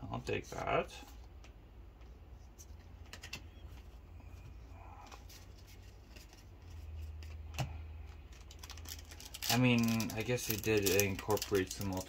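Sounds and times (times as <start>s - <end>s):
faint low hum: 0.0s - 12.0s
cards flicking and rustling: 5.0s - 12.0s.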